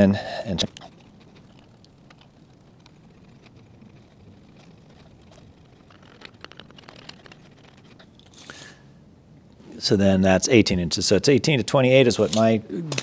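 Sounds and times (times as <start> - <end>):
metallic clicks and rattling: 0.5 - 8.5.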